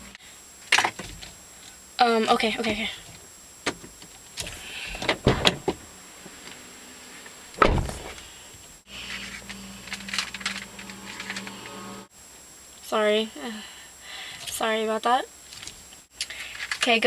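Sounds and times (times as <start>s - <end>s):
steady low hum: 0.0s - 17.0s
car door slamming: 7.6s - 8.2s.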